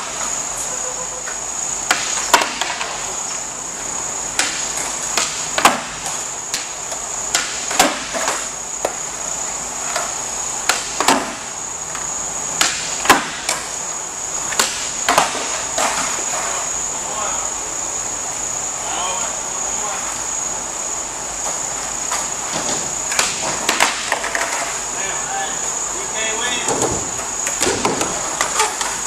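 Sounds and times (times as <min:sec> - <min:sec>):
skateboards cracking on concrete: 0:00.0 - 0:09.2, 0:14.4 - 0:17.2, 0:21.4 - 0:25.6, 0:26.2 - 0:29.0
steady high-pitched whine: 0:00.0 - 0:29.0
boards slapping onto concrete: 0:01.9 - 0:03.0, 0:04.4 - 0:09.0, 0:10.7 - 0:11.4, 0:14.5 - 0:16.2, 0:22.1 - 0:24.6, 0:26.7 - 0:29.0.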